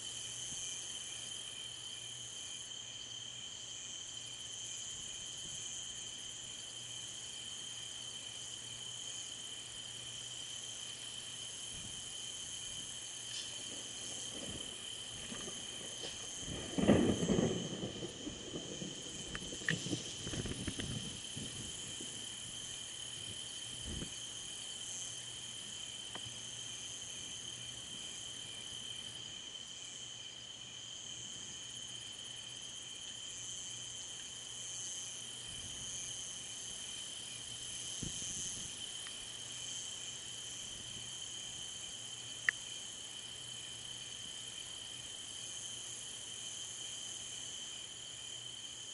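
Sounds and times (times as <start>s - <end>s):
crickets chirping: 0.0s - 48.9s
thunder crackling rumble: 13.5s - 22.3s.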